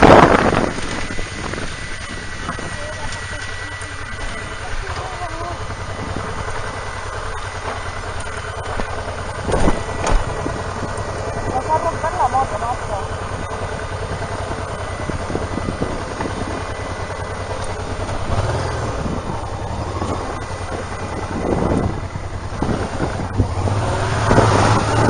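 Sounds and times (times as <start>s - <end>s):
wind rush on microphone: 0.0s - 2.8s, 14.2s - 17.0s, 17.8s - 25.0s
motorcycle engine running: 0.0s - 25.0s.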